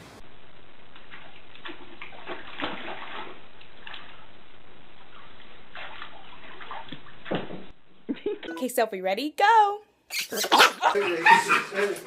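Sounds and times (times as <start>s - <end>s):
dogs splashing in water: 1.1s - 4.2s, 5.1s - 7.7s.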